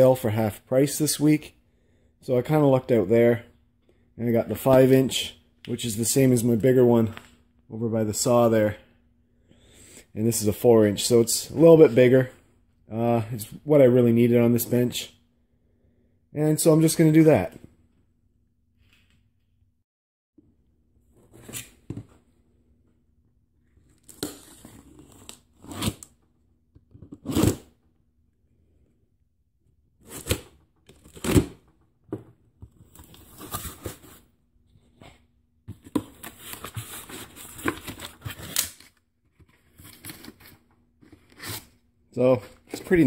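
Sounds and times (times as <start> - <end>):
cardboard rustling and tearing: 35.7 - 38.9.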